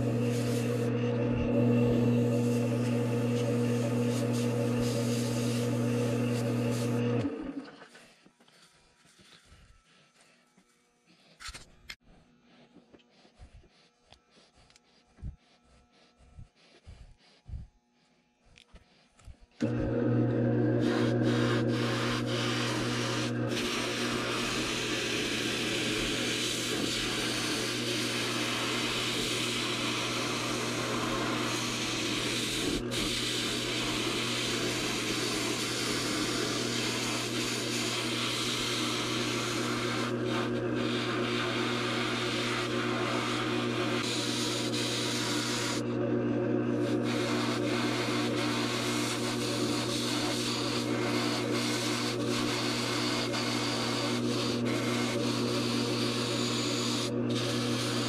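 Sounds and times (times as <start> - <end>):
lathe motor hum: 0.0 - 7.9, 19.6 - 58.0
turning tool scraping foam: 0.0 - 58.0.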